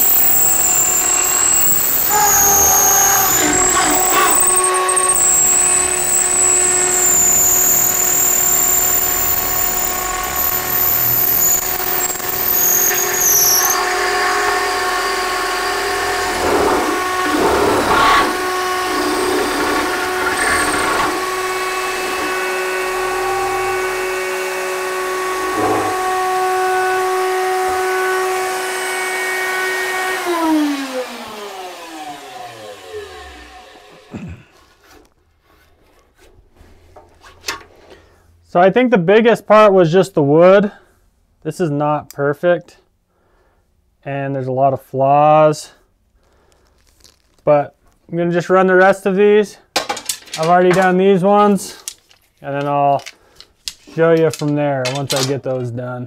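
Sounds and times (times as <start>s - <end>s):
router bit rasping wood: 0.0s - 34.2s
router and drill whining: 0.0s - 34.4s.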